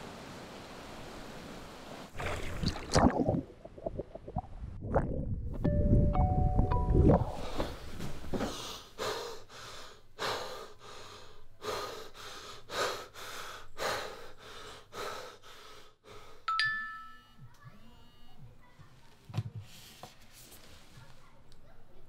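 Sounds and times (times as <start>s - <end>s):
mobile phone chime: 5.7s - 7.4s, 16.5s - 18.4s
man panting hard: 8.4s - 16.5s.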